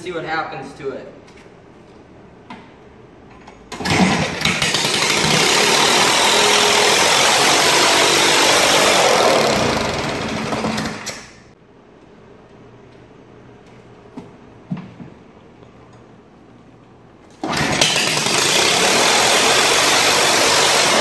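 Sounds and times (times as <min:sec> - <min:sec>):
small engine running: 0:04.5 - 0:11.1.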